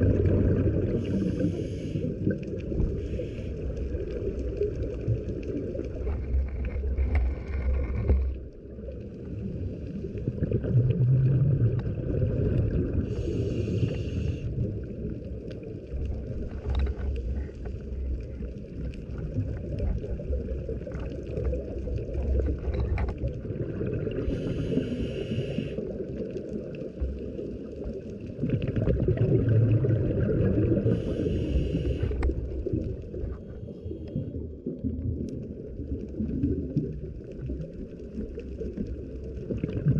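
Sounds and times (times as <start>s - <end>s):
exhaled bubbles rumbling: 0.0s - 39.9s
underwater water rush: 0.0s - 39.9s
regulator hissing inhalation: 1.0s - 2.2s, 13.1s - 14.5s, 24.2s - 25.8s, 30.9s - 32.2s.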